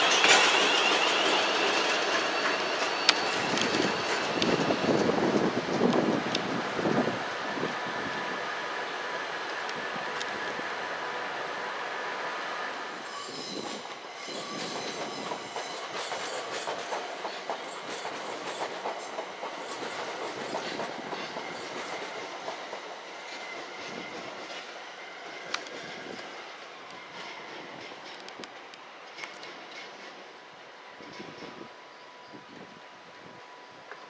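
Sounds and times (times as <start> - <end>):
high wheel squeal: 0.0 - 5.4, 10.0 - 16.5
train wheels clattering over rails: 0.0 - 7.8, 13.3 - 30.4.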